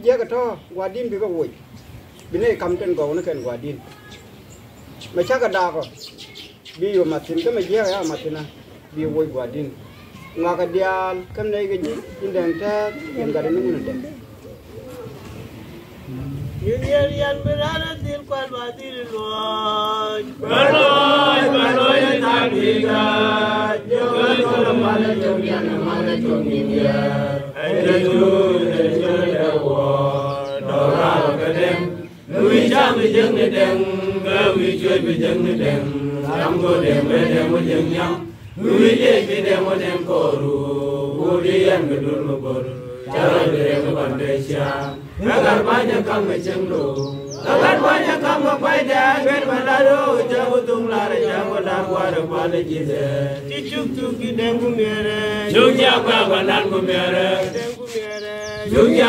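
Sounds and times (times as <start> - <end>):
group of voices chanting: 19.4 - 59.0.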